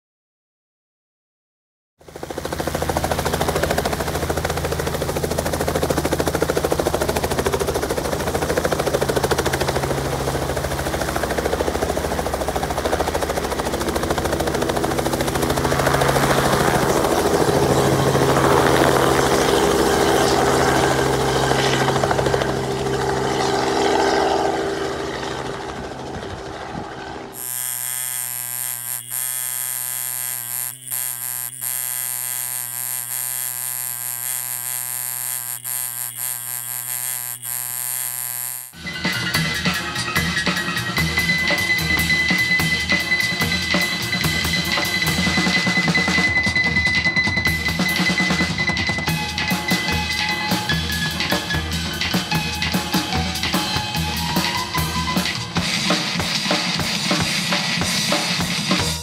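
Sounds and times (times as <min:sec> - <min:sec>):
helicopter engine and rotor: 0:02.0 - 0:33.8, 0:34.4 - 0:59.0
tattoo machine buzzing: 0:27.3 - 0:38.8.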